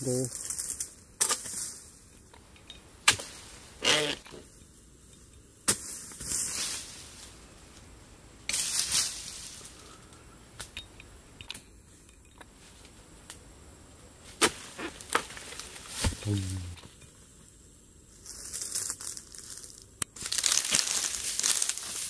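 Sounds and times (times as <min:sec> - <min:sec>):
dry leaves rustling underfoot: 0:00.0 - 0:02.2, 0:05.8 - 0:07.9, 0:08.5 - 0:10.0, 0:14.2 - 0:16.8, 0:18.1 - 0:22.0.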